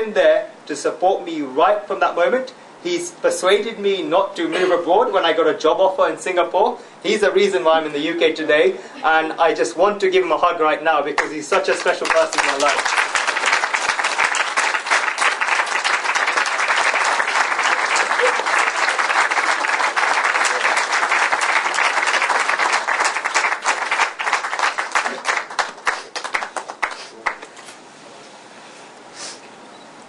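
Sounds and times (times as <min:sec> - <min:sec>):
audience applauding: 0:11.2 - 0:27.5.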